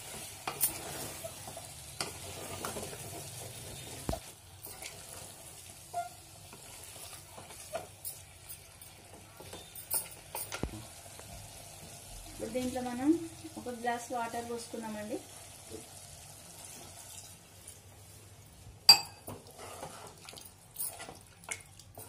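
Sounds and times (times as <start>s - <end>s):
spatula scraping a pot: 0.0s - 5.3s, 5.9s - 7.9s, 19.4s - 20.3s
food sizzling: 0.0s - 22.0s.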